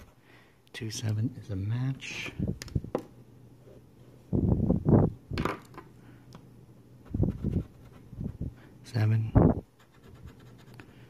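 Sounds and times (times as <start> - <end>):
marker rubbing on paper: 7.1 - 8.5, 9.8 - 10.8.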